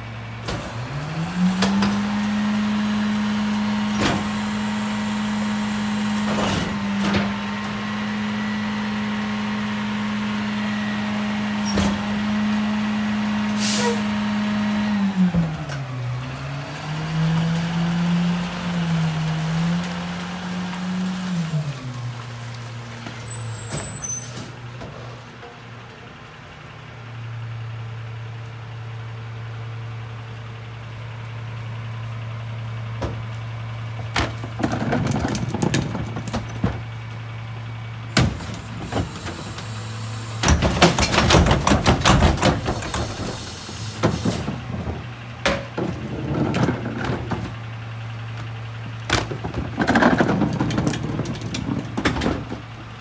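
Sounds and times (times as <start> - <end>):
trash carts clattering and banging: 3.4 - 8.0, 11.4 - 14.1, 15.3 - 26.4, 32.6 - 53.0
truck engine idling: 20.2 - 53.0.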